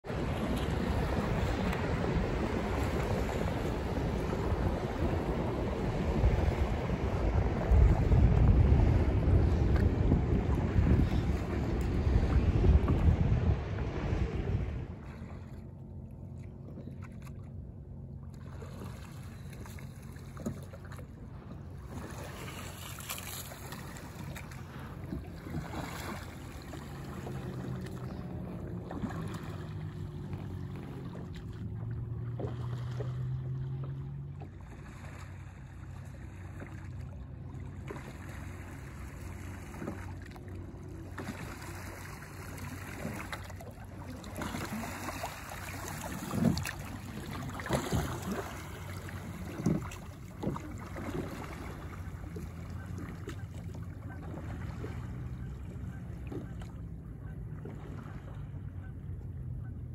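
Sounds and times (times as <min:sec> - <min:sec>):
wind on microphone: 0:00.0 - 0:15.1
low hum: 0:00.0 - 0:59.9
oars splashing through water: 0:00.0 - 0:59.9
water lapping at hull: 0:00.0 - 0:59.9.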